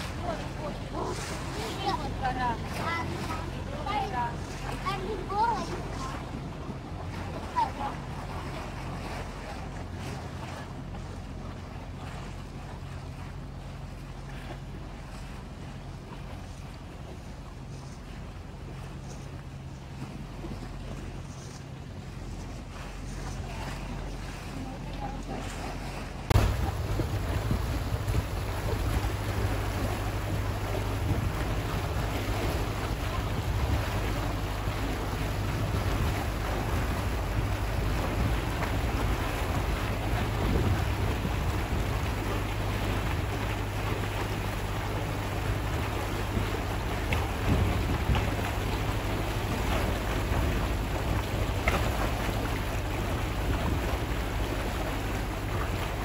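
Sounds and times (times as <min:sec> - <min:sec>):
motorboat engine drone: 0:00.0 - 0:56.0
rushing wake water: 0:00.0 - 0:56.0
wind buffeting microphone: 0:13.3 - 0:56.0.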